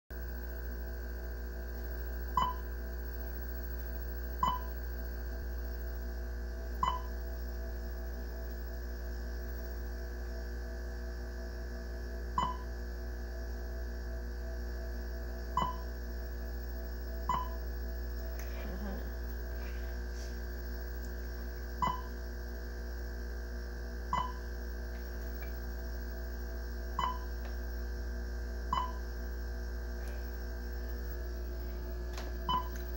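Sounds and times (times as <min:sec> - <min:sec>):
computer electrical hum: 0:00.1 - 0:32.9
short electronic beeps: 0:02.4 - 0:02.7, 0:04.4 - 0:04.8, 0:06.8 - 0:07.2, 0:12.4 - 0:12.7, 0:15.6 - 0:16.0, 0:17.3 - 0:17.6, 0:21.8 - 0:22.2, 0:24.1 - 0:24.5, 0:27.0 - 0:27.3, 0:28.7 - 0:29.1, 0:32.5 - 0:32.8.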